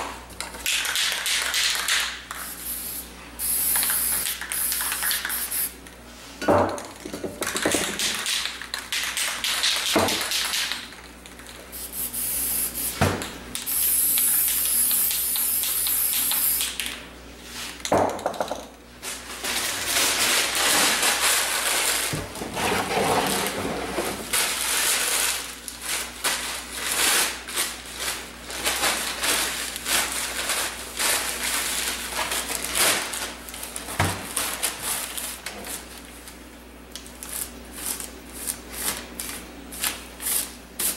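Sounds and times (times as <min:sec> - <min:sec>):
spray paint cans hissing: 0:00.6 - 0:05.8, 0:11.7 - 0:13.0, 0:13.6 - 0:17.0, 0:40.2 - 0:40.9.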